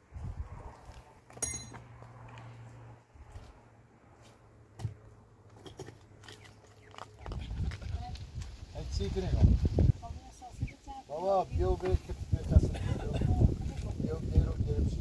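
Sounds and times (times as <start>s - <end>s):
ringing clink: 1.4s - 1.8s.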